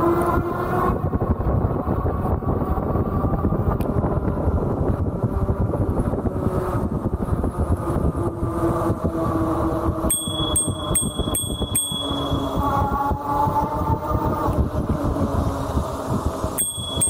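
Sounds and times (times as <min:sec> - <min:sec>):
wind buffeting microphone: 0:00.0 - 0:17.0
bicycle bell ringing: 0:10.1 - 0:12.8, 0:16.6 - 0:17.0.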